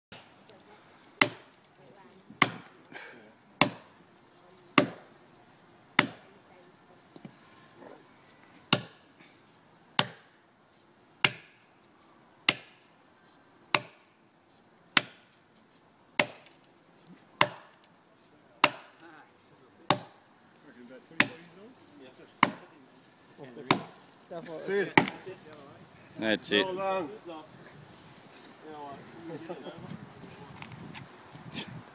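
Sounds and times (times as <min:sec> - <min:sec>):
axe chopping tree trunk: 0:01.2 - 0:01.5, 0:02.4 - 0:02.8, 0:03.6 - 0:03.9, 0:04.8 - 0:05.1, 0:06.0 - 0:06.2, 0:08.7 - 0:09.0, 0:10.0 - 0:10.3, 0:11.2 - 0:11.6, 0:12.5 - 0:12.9, 0:13.7 - 0:14.1, 0:14.9 - 0:15.3, 0:16.2 - 0:16.6, 0:17.4 - 0:17.8, 0:18.6 - 0:19.0, 0:19.9 - 0:20.2, 0:21.2 - 0:21.4, 0:22.4 - 0:22.7, 0:23.7 - 0:24.0, 0:24.9 - 0:25.2.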